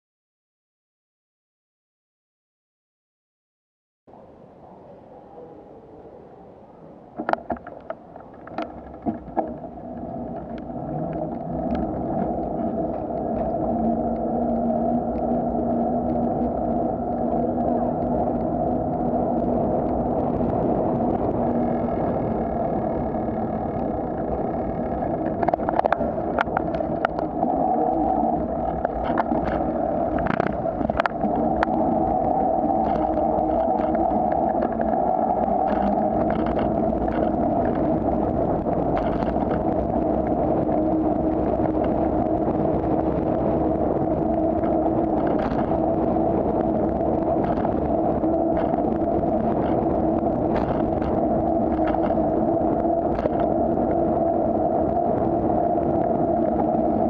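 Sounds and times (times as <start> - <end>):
wind rumble: 4.1 - 57.0
bicycle rolling noise: 7.1 - 57.0.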